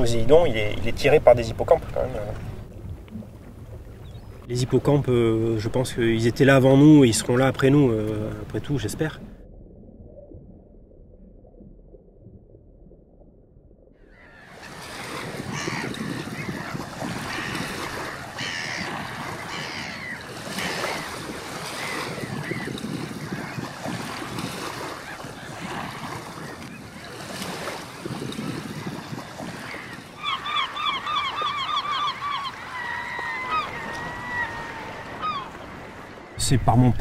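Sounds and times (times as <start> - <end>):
water lapping and splashing: 0.0 - 12.4, 13.9 - 36.6
gull calling: 14.0 - 27.6, 28.4 - 36.4.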